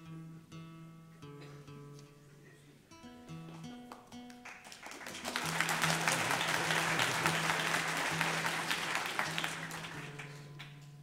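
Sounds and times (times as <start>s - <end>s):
acoustic guitar notes: 0.0s - 4.4s
audience applauding: 4.3s - 10.8s.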